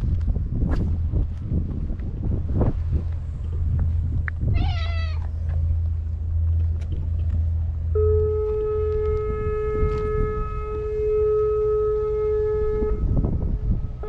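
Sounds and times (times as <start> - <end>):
wind rumble on microphone: 0.0 - 14.0
cat meowing: 4.5 - 5.3
steady horn or siren tone: 7.8 - 14.0.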